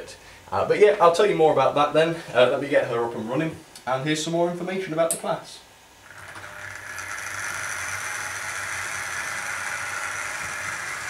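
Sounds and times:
model train motor whirring: 6.0s - 11.0s.

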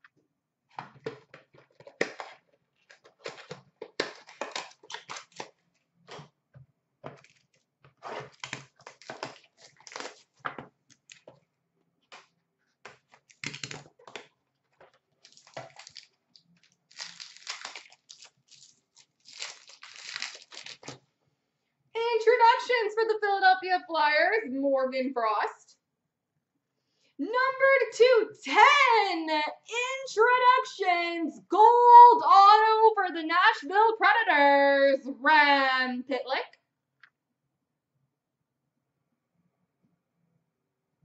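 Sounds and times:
cards being handled: 0.8s - 6.3s, 7.0s - 11.4s, 12.0s - 21.0s
foil wrappers tearing and crinkling: 1.8s - 5.6s, 7.2s - 11.3s, 12.9s - 14.3s, 15.2s - 21.0s.

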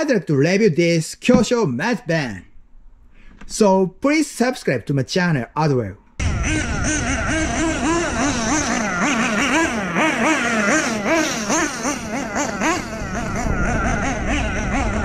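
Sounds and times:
model truck engine revving: 6.2s - 15.0s.

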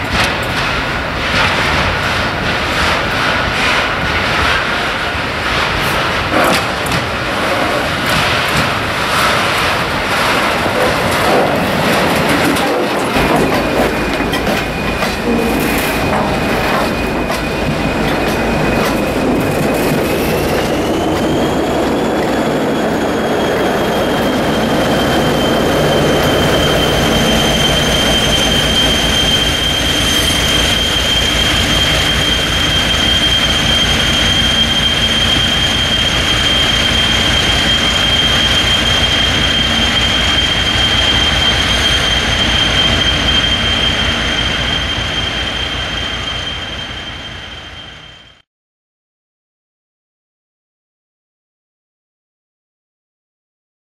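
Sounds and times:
train wheels clicking over rail joints: 0.0s - 43.4s
locomotive engine rumbling: 0.0s - 47.6s
high wheel squeal: 5.7s - 48.4s.

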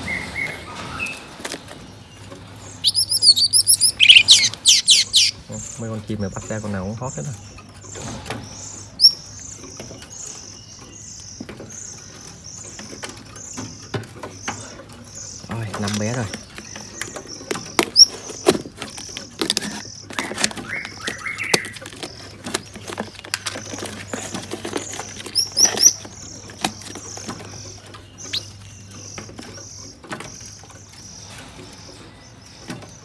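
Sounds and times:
nestlings cheeping: 0.0s - 33.0s
sharp rising chirps: 2.8s - 5.4s.

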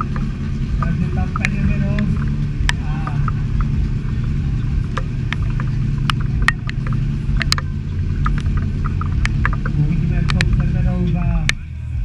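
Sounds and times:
sharp ticks and taps: 0.0s - 3.8s, 4.9s - 10.7s
engine running at low pitch: 0.0s - 12.0s.

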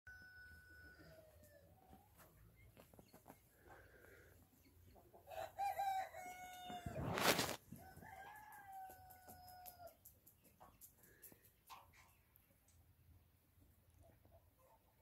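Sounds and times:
rooster crowing: 0.1s - 1.6s, 5.3s - 9.9s
loud rustle: 6.9s - 7.6s.

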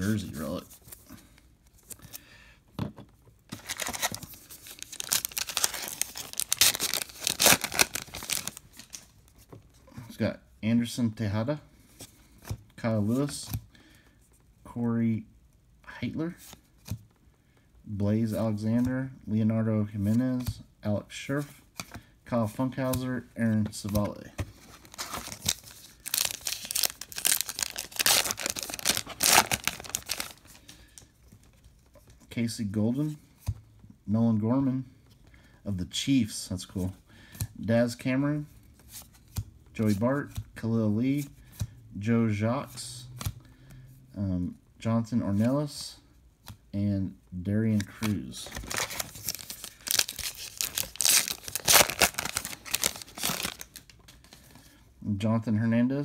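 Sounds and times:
card pack wrapper tearing: 3.5s - 9.0s, 24.8s - 30.6s, 48.4s - 53.9s
wrapper crinkling: 3.5s - 9.0s, 24.8s - 30.6s, 48.4s - 54.0s.

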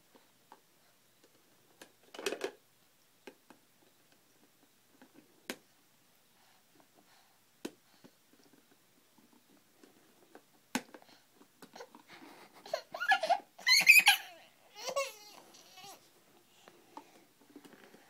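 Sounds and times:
baby laughing: 12.2s - 16.0s.

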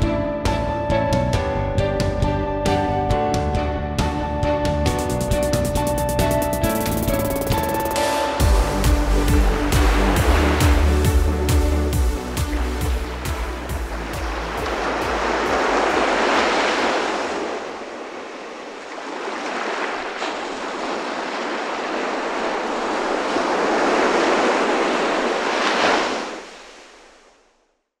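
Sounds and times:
ocean surf breaking on beach: 6.7s - 27.5s.

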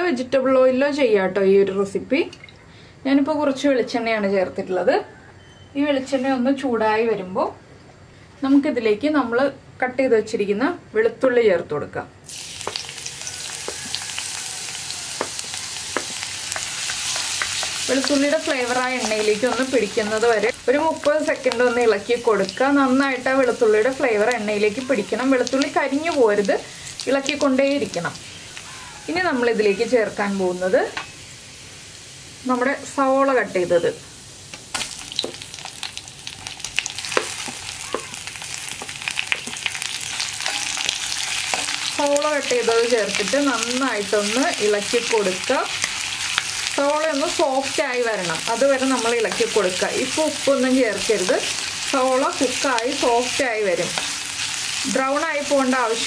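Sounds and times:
garlic sizzling in oil: 12.3s - 56.0s
oil popping: 34.5s - 42.2s
spatula scraping a pan: 39.4s - 42.0s.

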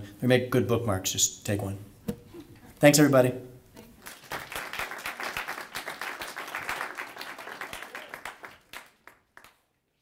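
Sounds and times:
audience applauding: 4.0s - 9.7s.

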